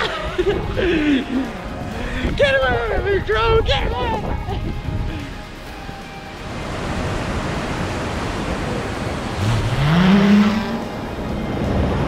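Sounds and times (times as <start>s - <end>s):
steady rushing noise: 0.0s - 12.0s
motor pitch rising: 9.1s - 11.9s.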